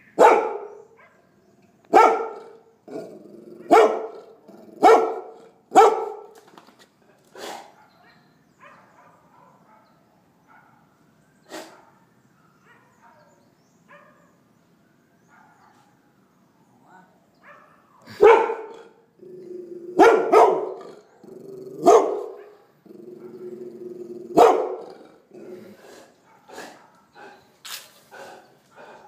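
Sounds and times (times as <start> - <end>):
dog barking: 0.2 - 1.3, 1.9 - 2.6, 3.6 - 6.4, 7.4 - 10.9, 11.5 - 13.3, 13.9 - 14.4, 15.3 - 16.0, 17.4 - 18.9, 20.0 - 21.0, 21.8 - 23.4, 24.3 - 25.0, 26.3 - 27.2
low dog vocal sounds: 18.0 - 29.0.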